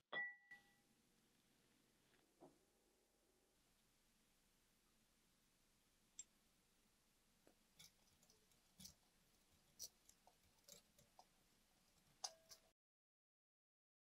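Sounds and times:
faint clicks and taps: 7.4s - 12.7s.

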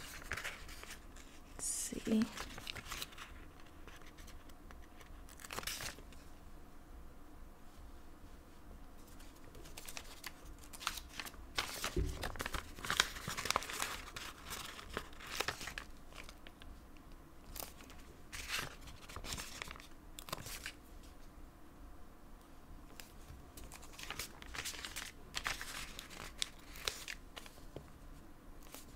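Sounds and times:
paper sticker sheet crinkling: 0.0s - 6.2s, 9.0s - 16.6s, 17.5s - 20.8s, 22.9s - 27.6s.

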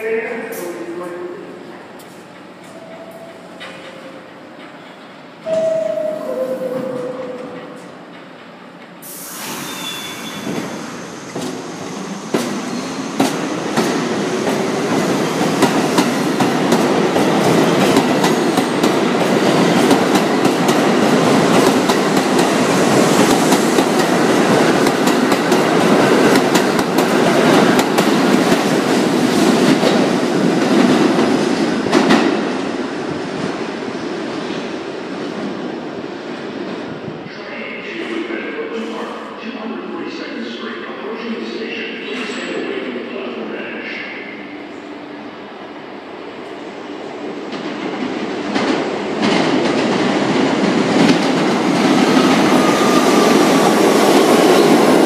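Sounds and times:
door-closing chime: 5.4s - 7.8s
sudden hiss: 9.0s - 11.3s.

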